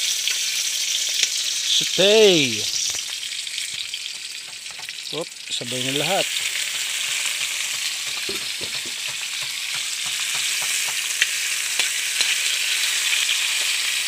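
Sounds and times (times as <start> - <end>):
vegetables sizzling in hot oil: 0.0 - 14.0
ladle scraping and tapping wok: 6.3 - 11.2.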